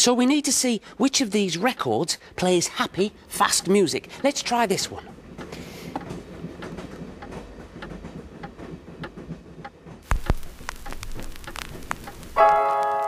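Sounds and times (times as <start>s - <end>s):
record crackle: 10.0s - 13.0s.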